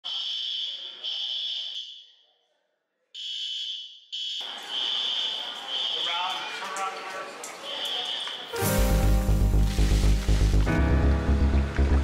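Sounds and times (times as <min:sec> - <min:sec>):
fire alarm tone pulses: 0:00.0 - 0:02.2, 0:03.2 - 0:06.6.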